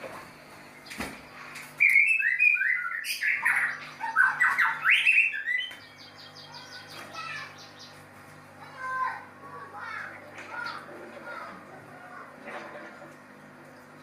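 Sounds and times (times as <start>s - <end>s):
bird chattering and whistling: 1.8s - 8.0s.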